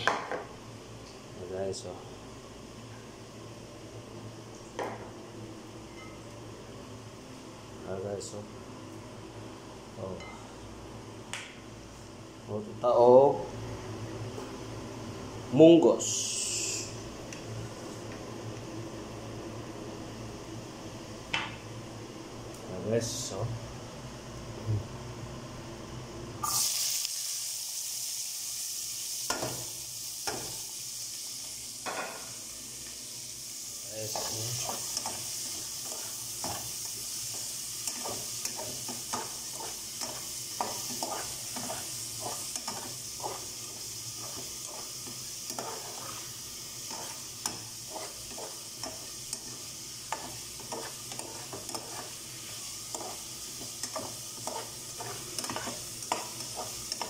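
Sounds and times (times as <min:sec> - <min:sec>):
vegetables sizzling in a pot: 0:15.7 - 0:17.9, 0:26.4 - 0:57.0
spoon scraping a pot: 0:46.9 - 0:52.1, 0:53.8 - 0:57.0.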